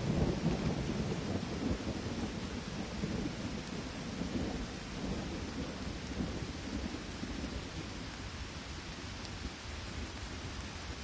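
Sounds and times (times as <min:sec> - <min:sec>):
thunder rumbling: 0:00.0 - 0:08.3
steady rain: 0:00.0 - 0:11.0.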